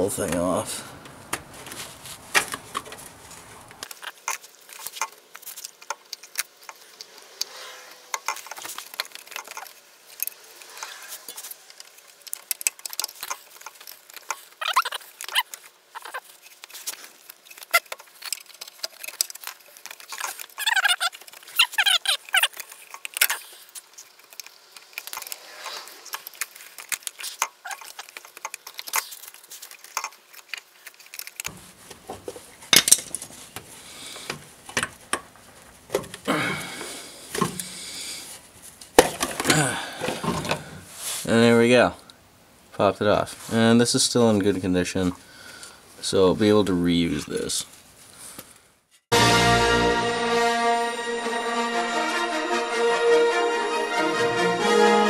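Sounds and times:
short squeaks: 14.5 - 16.4, 20.1 - 23.6.

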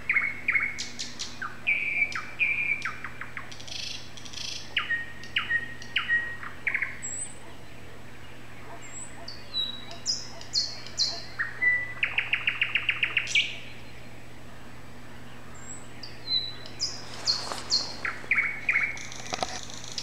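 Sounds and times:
songbird singing: 0.0 - 20.0.

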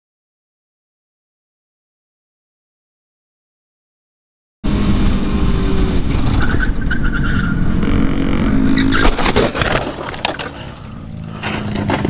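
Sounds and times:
motorcycle engine running: 7.5 - 9.1
scraping and clattering: 8.9 - 12.0
motorcycle crash knocks: 9.0 - 10.9.

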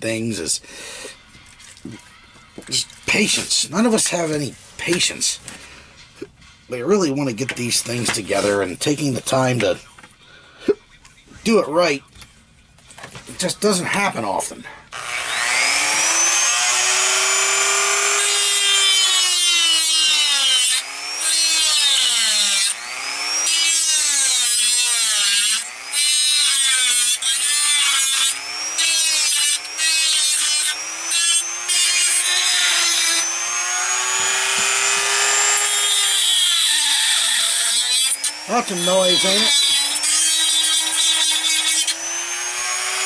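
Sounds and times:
rotary tool grinding plastic: 14.9 - 43.0.

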